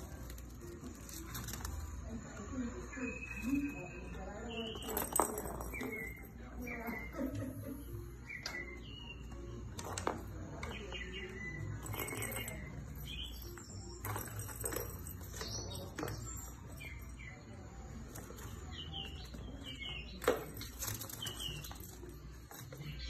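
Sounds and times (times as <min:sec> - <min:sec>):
faint high chirps: 0:02.5 - 0:05.0.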